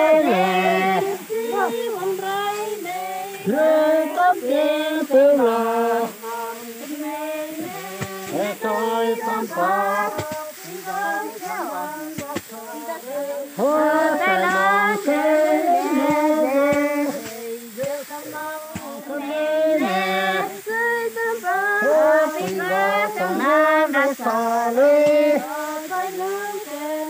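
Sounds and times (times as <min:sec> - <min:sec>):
women singing: 0:00.0 - 0:27.0.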